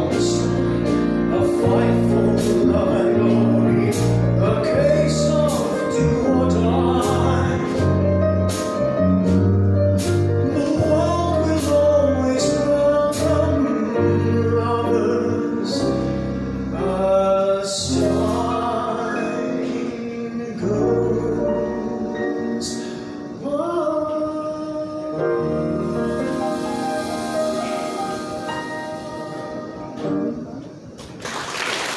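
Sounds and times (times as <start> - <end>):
man singing into microphone: 0.0 - 8.0, 10.4 - 16.1, 16.7 - 26.6
live band with piano: 0.0 - 31.9.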